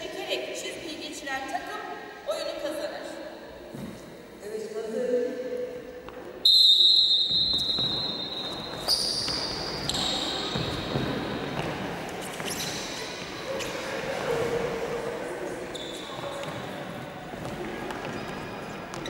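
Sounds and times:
shrill whistle blasts: 6.4 - 10.9.

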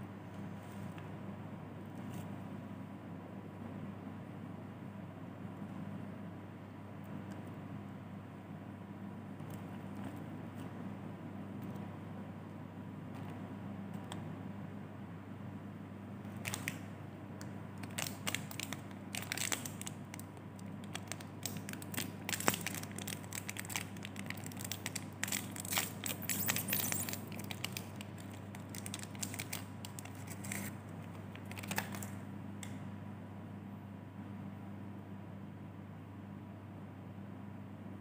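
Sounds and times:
plastic wrapper crinkling: 16.3 - 16.8, 17.8 - 32.2.

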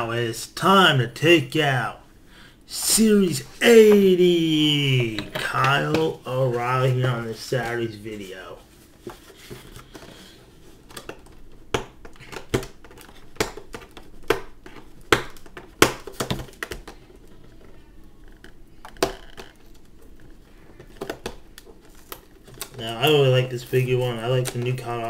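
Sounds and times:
packaging crinkling and clicking: 18.2 - 23.3.

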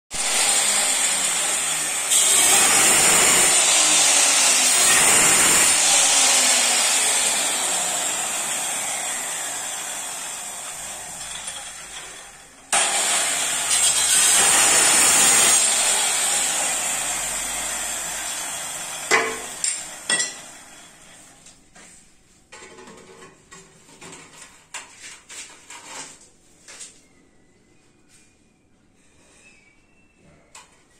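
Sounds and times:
tile cutter grinding whine: 0.1 - 21.3.

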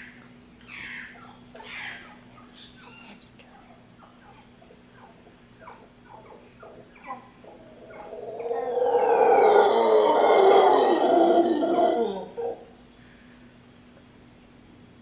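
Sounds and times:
howler monkey howling: 4.3 - 12.8.

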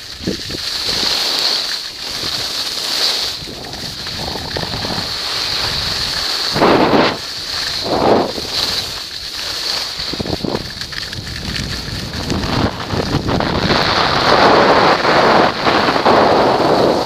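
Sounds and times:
skis sliding over snow: 0.0 - 17.0
wind buffeting microphone: 3.2 - 9.0, 9.9 - 17.0.

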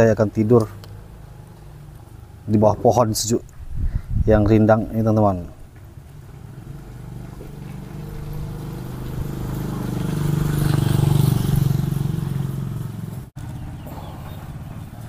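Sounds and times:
vehicle engine passing by: 0.4 - 2.6, 5.9 - 15.0.

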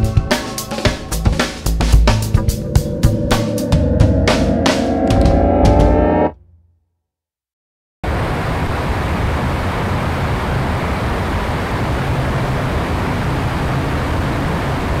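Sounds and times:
low vehicle hum: 1.8 - 6.4
road and air noise in tunnel: 8.1 - 15.0.

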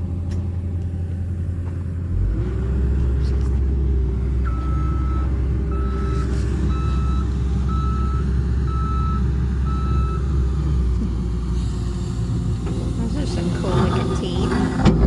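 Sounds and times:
engine low rumble: 0.0 - 15.0
reversing alarm beeping: 4.4 - 10.3.

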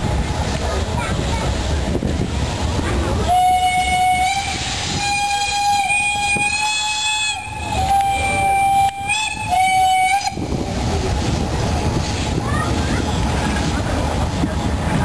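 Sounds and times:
low train rumble: 0.0 - 15.0
steam locomotive whistle: 3.2 - 10.5.

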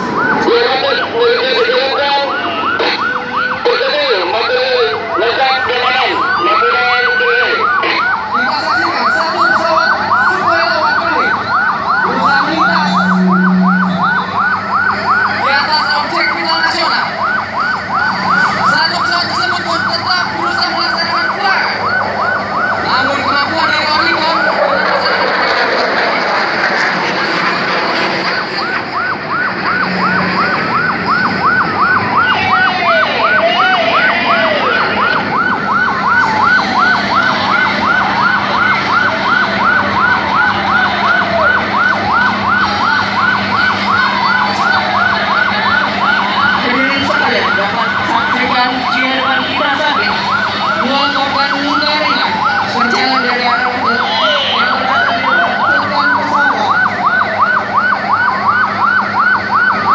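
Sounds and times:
siren falling in pitch: 0.0 - 59.9
warbling siren yelp: 0.0 - 59.9.

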